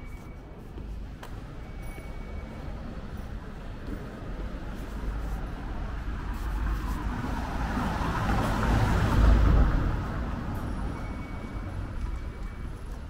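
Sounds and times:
vehicle driving past: 0:05.6 - 0:12.0.

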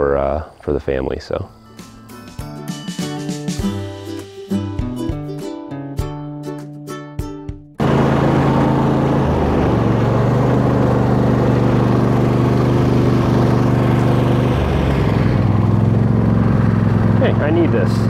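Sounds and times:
tractor engine running: 0:07.8 - 0:18.0.

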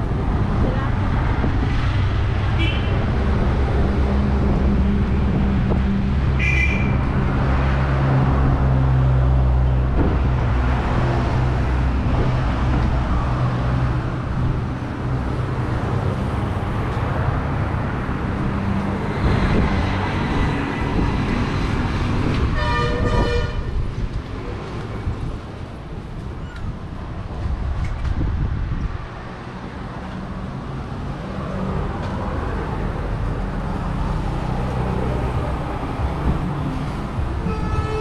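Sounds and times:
passing vehicles: 0:00.0 - 0:38.0.

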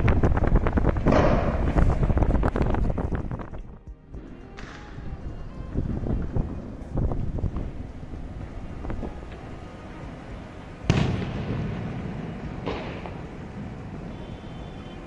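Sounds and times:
fireworks popping: 0:00.0 - 0:09.5, 0:10.8 - 0:14.8
loud firework bang echoing: 0:01.0 - 0:01.8, 0:10.9 - 0:13.4.

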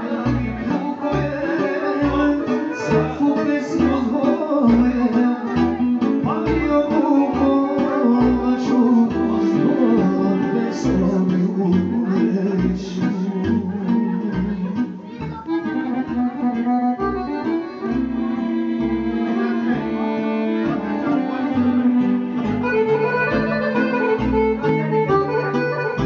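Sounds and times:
man singing into microphone: 0:00.0 - 0:14.9
bass beat: 0:00.0 - 0:20.0, 0:20.6 - 0:26.0.

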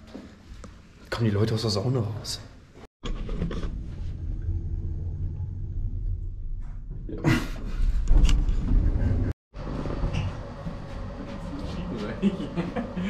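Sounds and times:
lift car rumbling: 0:03.9 - 0:10.2.

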